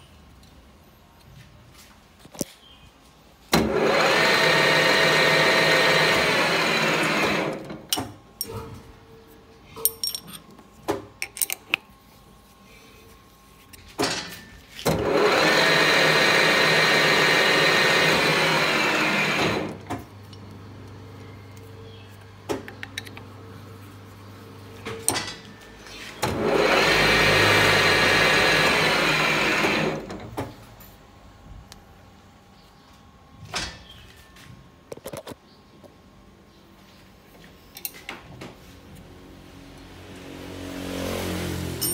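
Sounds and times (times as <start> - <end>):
lathe motor humming: 3.6 - 7.8, 15.0 - 21.7, 25.5 - 30.2.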